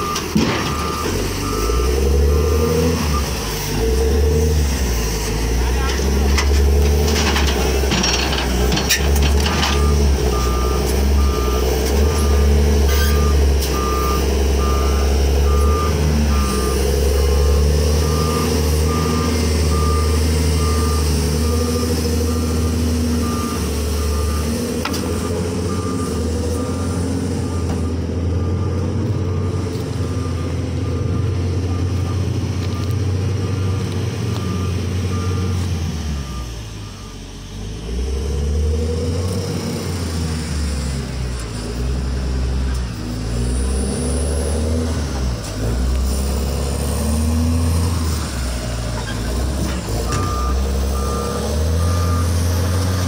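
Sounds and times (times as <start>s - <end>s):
reversing alarm beeping: 0.0s - 4.3s, 9.4s - 37.3s, 50.0s - 53.0s
wheel loader diesel engine: 0.0s - 53.0s.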